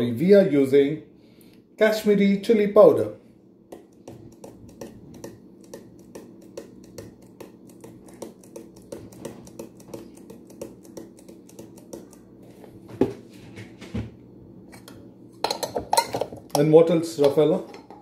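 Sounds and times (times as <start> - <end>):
jar shaken and tapped: 3.7 - 12.3.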